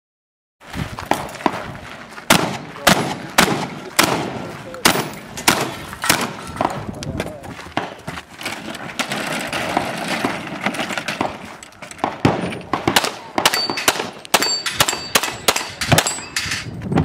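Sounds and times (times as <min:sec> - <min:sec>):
rapid gunshots: 0:02.3 - 0:06.8, 0:12.0 - 0:16.1
metallic pings of steel targets: 0:13.4 - 0:16.8.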